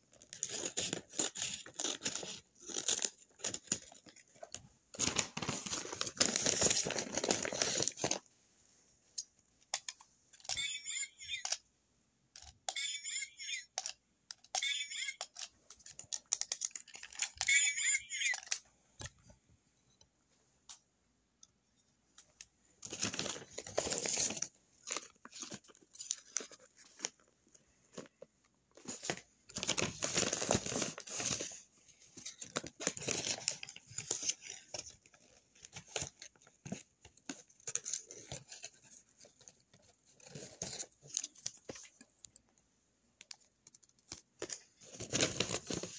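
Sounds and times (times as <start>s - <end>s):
paper crinkling and rustling: 0.0s - 8.3s, 15.2s - 17.6s, 22.8s - 42.1s, 43.3s - 45.9s.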